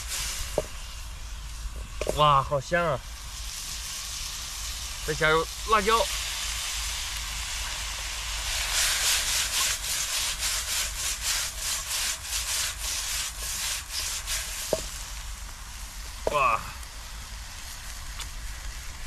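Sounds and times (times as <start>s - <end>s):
oil sizzling in a frying pan: 0.0s - 19.0s
spatula scraping a pan: 8.6s - 15.0s.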